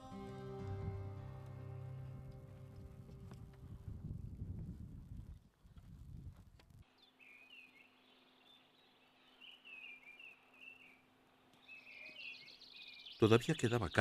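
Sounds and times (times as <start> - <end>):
low rumble: 0.6 - 5.4
small birds chirping: 6.8 - 14.0.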